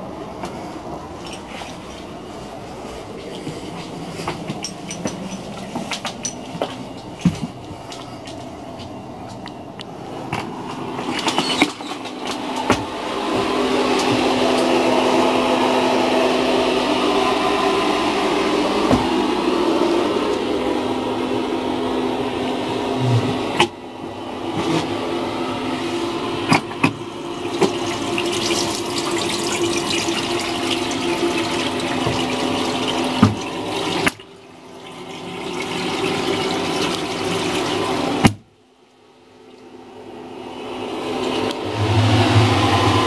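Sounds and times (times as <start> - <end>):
tap water running into basin: 3.1 - 20.8, 25.6 - 38.4.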